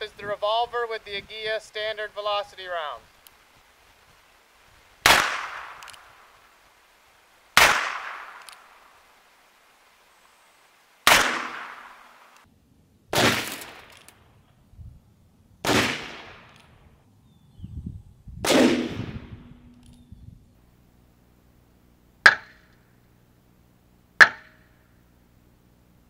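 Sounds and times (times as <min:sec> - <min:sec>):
revolver gunshots: 0:05.0 - 0:06.2, 0:07.6 - 0:08.7, 0:11.0 - 0:12.2, 0:13.1 - 0:14.2, 0:15.6 - 0:16.8, 0:18.4 - 0:19.8.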